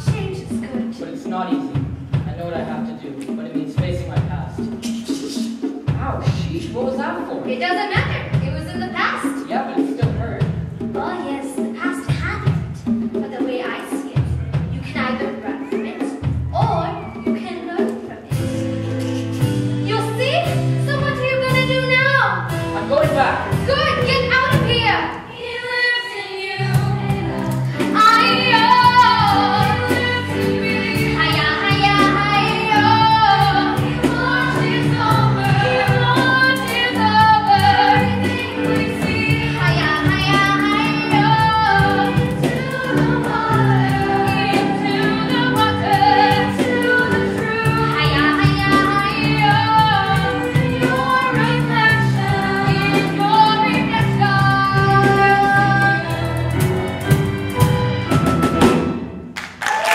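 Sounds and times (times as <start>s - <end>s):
instrumental accompaniment: 0.0s - 59.9s
woman singing lead: 19.8s - 56.8s
chorus singing: 22.6s - 58.9s.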